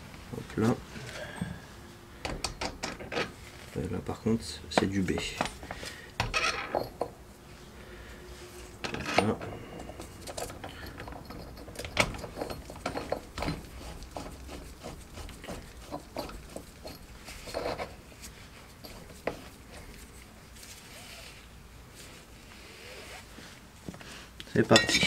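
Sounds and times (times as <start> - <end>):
metal tools clinking: 4.7 - 7.2, 8.8 - 14.1, 15.6 - 20.1, 24.5 - 25.0.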